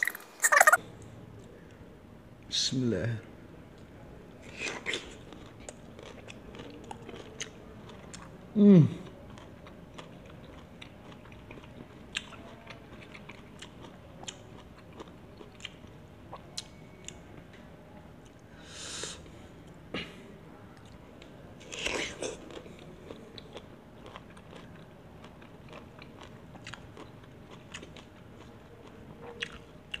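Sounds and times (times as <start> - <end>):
chewing and crunching mango: 4.4 - 17.3, 20.8 - 30.0.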